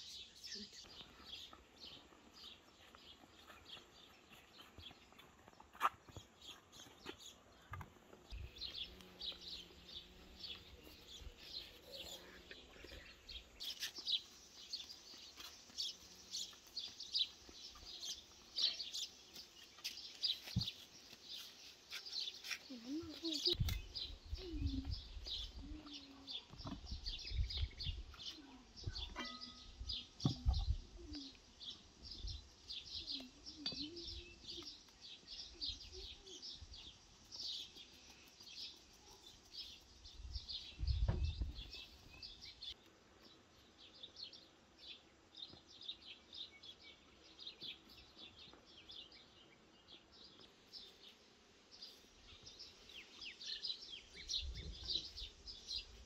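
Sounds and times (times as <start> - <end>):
small birds chirping: 0.0 - 56.0
dull low thumps: 40.8 - 41.7.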